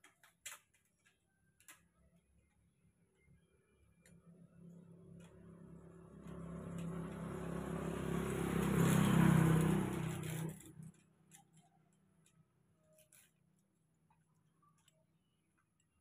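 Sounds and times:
vehicle engine passing by: 4.4s - 11.0s.

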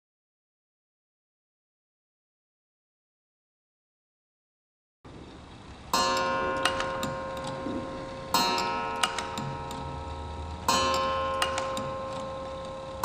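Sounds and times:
clock striking: 5.4s - 13.0s
clock movement clicking: 6.0s - 13.0s.

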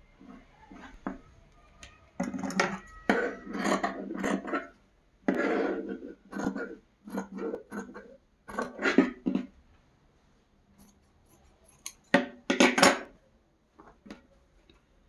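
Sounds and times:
scissors cutting fabric: 10.8s - 12.1s.

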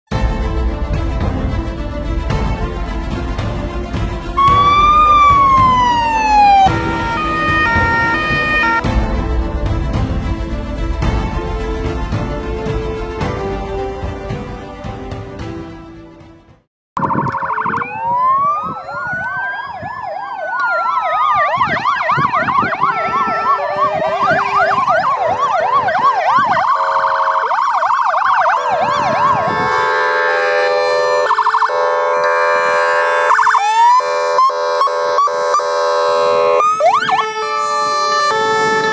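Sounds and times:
fire engine sirens wailing and yelping: 4.3s - 8.8s, 17.0s - 38.9s
multi-tone air horn blasts: 28.6s - 38.9s.

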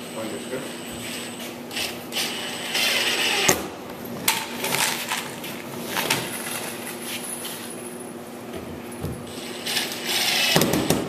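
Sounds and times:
cordless drill driving screw: 1.7s - 3.6s, 9.7s - 10.6s.

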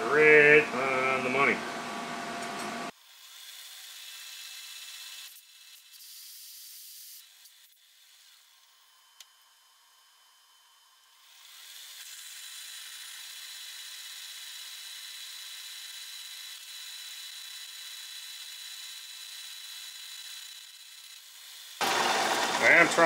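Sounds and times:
drill boring into metal: 11.2s - 23.0s.

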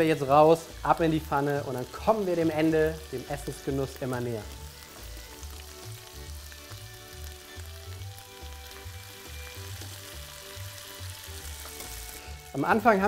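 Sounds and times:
background music with steady beat: 0.0s - 13.0s
sauce sizzling in a frying pan: 0.0s - 13.0s.

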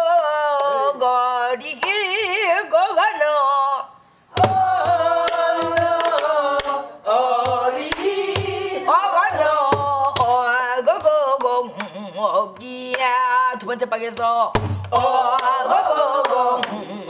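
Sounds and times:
woman singing folk song: 0.0s - 3.9s, 8.9s - 14.6s
barrel drum beaten with stick: 4.4s - 6.2s, 7.4s - 10.6s, 14.5s - 15.1s.

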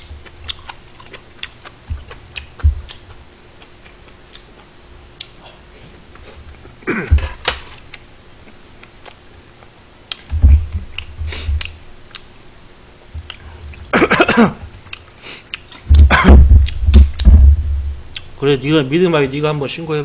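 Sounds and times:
man coughing: 6.8s - 7.4s, 13.9s - 14.7s, 16.0s - 16.5s.

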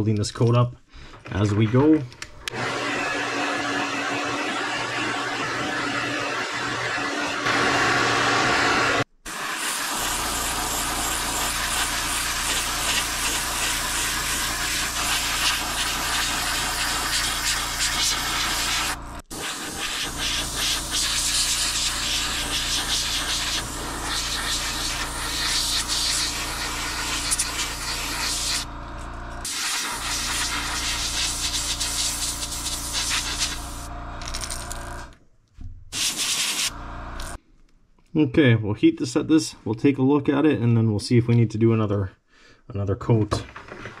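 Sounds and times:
heat gun blowing: 2.3s - 35.1s, 35.9s - 37.4s
air compressor humming: 2.3s - 35.2s, 35.9s - 37.4s
airbrush spraying hiss: 9.3s - 28.7s, 29.4s - 33.9s, 35.9s - 37.4s.

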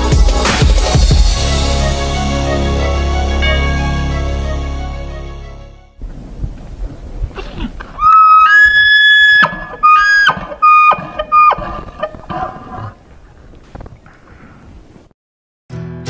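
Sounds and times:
elk bugling: 7.4s - 13.6s.

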